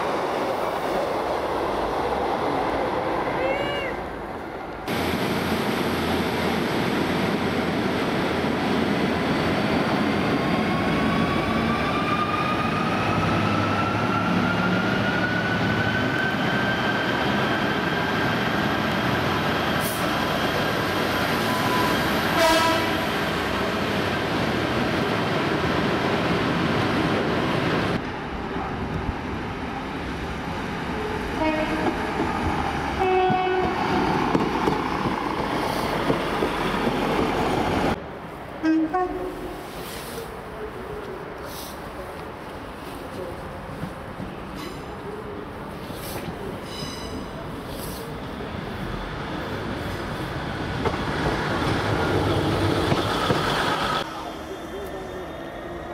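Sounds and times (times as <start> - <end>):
train horn notes: 22.4 - 23.0, 31.4 - 31.9, 33.0 - 33.8, 38.6 - 39.5.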